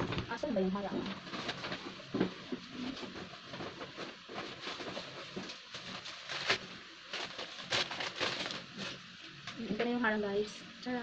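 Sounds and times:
hands rummaging and rustling: 0.9 - 9.0.

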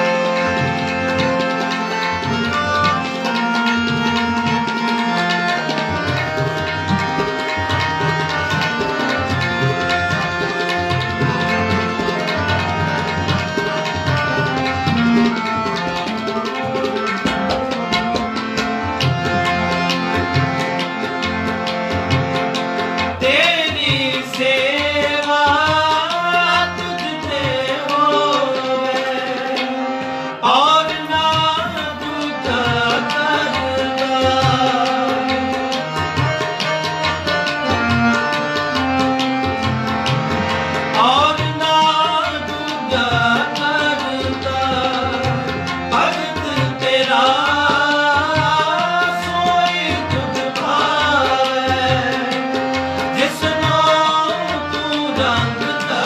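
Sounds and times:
harmoniums: 0.0 - 56.0
tabla rhythm: 0.0 - 56.0
men singing a hymn: 23.2 - 35.5, 40.9 - 56.0.

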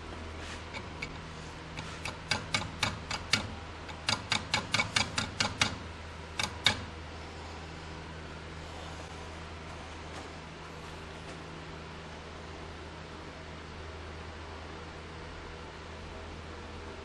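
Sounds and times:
sharp light taps on metal: 1.8 - 5.8, 6.4 - 6.9.

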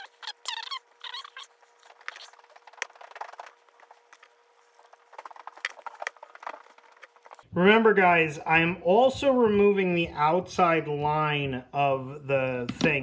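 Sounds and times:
high chirping: 0.0 - 1.5
paper rasps: 0.0 - 7.4.

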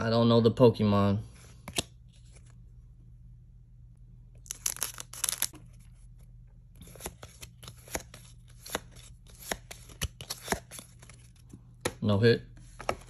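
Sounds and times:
cards rustling: 1.3 - 2.6, 4.4 - 6.2, 6.8 - 13.0.

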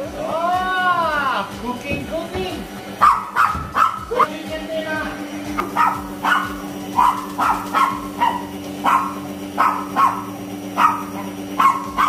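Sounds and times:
puppy yapping: 3.0 - 4.3, 5.6 - 12.0.

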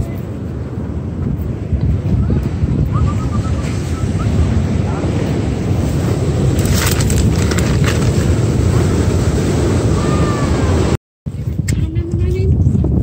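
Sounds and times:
wind buffeting microphone: 0.0 - 13.0
short crackles: 6.6 - 8.3.

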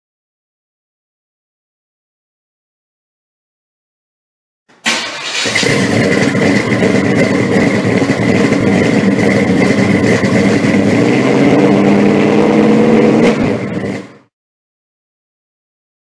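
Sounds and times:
car engine idling: 4.8 - 14.3.

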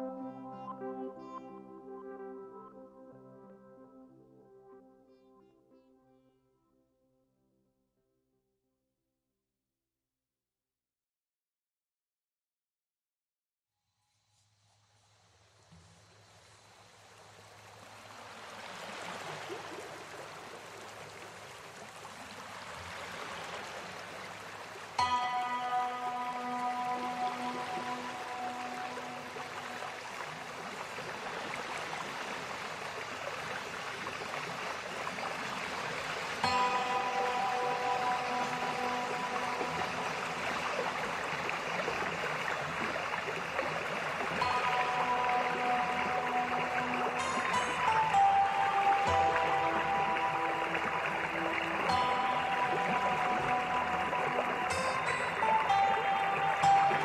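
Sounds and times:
background music: 0.0 - 6.9, 25.0 - 30.3, 36.4 - 42.0, 44.4 - 57.0
stream rushing over rocks: 15.8 - 57.0.

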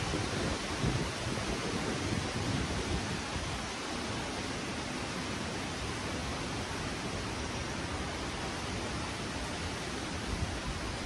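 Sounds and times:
wind buffeting the microphone: 0.0 - 4.8, 9.7 - 11.0
wind rushing through trees: 0.0 - 11.0.

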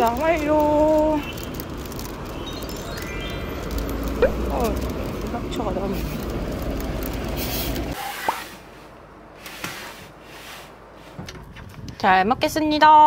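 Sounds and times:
small clicks: 0.0 - 7.9
low street rumble: 0.0 - 13.0.

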